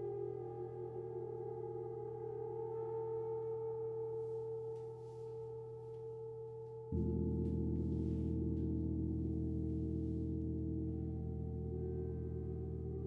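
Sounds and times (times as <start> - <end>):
deeper gong struck: 7.0 - 13.0.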